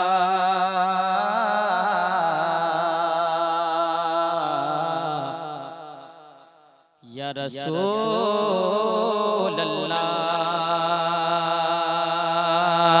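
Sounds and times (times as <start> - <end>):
boy singing into a microphone: 7.1 - 13.0.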